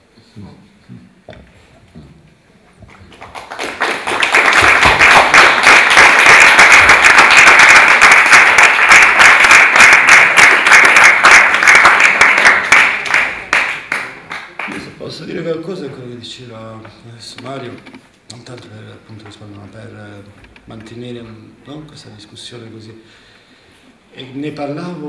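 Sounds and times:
audience applauding: 2.9s - 15.0s.

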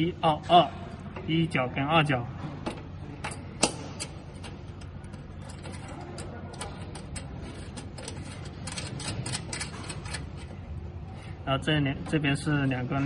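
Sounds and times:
connector ring clicking and scraping: 2.7s - 10.6s.

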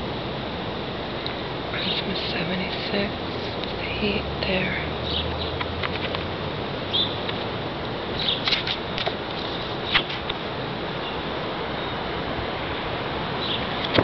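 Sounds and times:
background hiss: 0.0s - 14.0s
photographs being handled: 8.4s - 10.3s.

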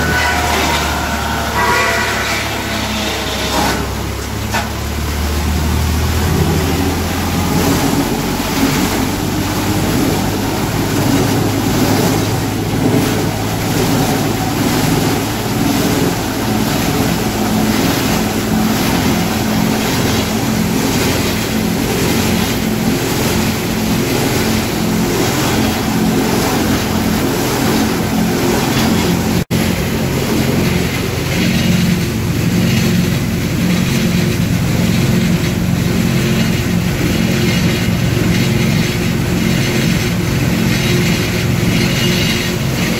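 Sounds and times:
tractor engine drone: 0.0s - 42.9s
wood crusher grinding wood: 0.0s - 42.9s.

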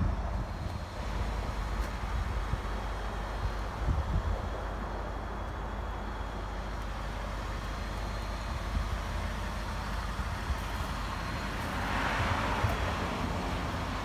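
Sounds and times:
road traffic rumble: 0.0s - 14.0s
vehicle passing: 11.1s - 14.0s.

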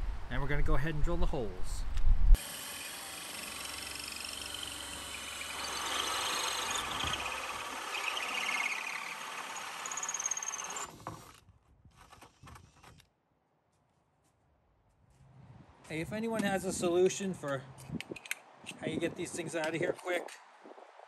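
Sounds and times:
cordless drill motor whining: 2.4s - 11.4s
hole saw grinding into wood: 2.4s - 13.0s.

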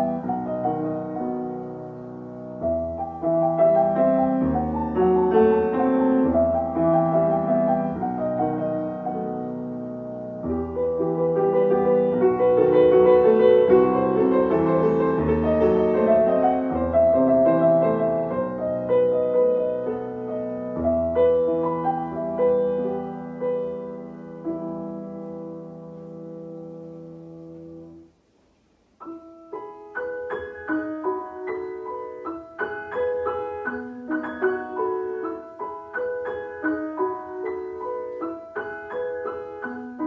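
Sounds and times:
solo piano piece: 0.0s - 40.0s.

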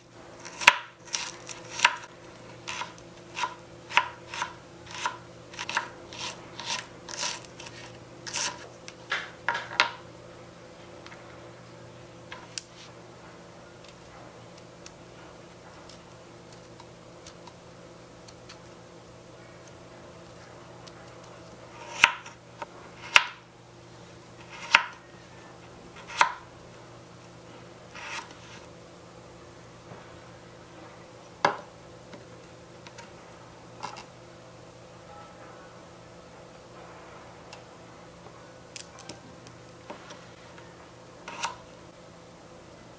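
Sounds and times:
knife chopping on wooden board: 24.5s - 25.0s.

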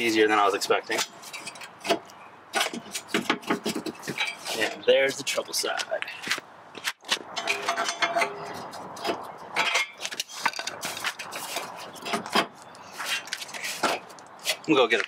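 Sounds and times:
metal bar clinking and scraping: 0.9s - 2.0s, 2.6s - 4.8s, 7.3s - 14.6s.

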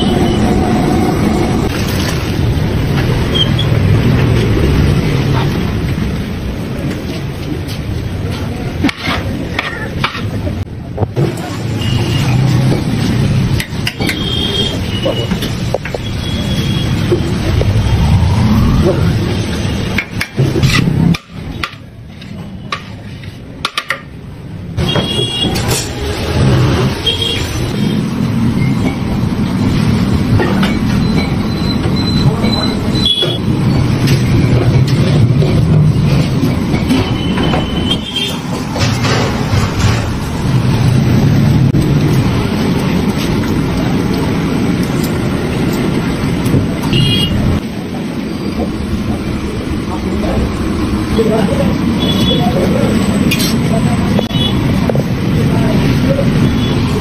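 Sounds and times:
low rumbling background noise: 14.8s - 24.8s.

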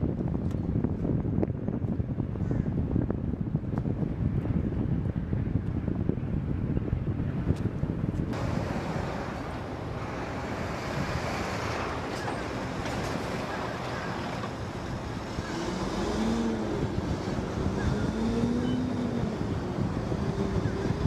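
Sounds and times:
wind buffeting microphone: 0.0s - 21.0s
tugboat engines rumbling: 6.2s - 21.0s
churned water: 8.4s - 16.7s.

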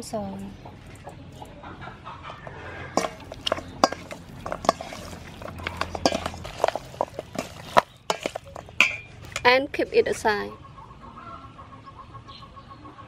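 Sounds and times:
meat knocking in metal bowl: 2.4s - 10.2s.

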